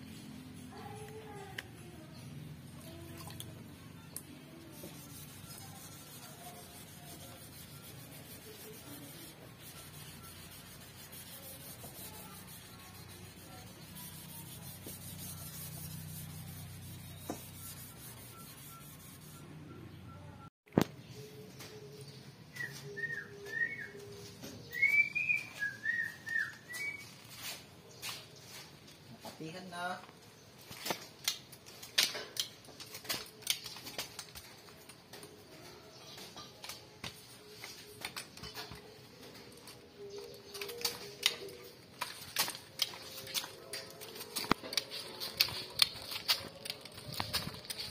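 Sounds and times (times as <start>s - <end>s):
sanding pad rubbing on paint: 4.7s - 19.4s.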